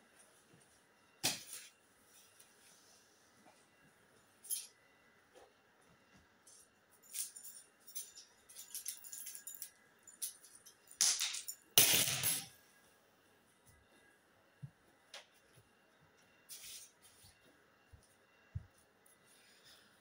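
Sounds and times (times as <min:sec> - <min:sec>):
light clinks and clicks: 0:06.4 - 0:11.6.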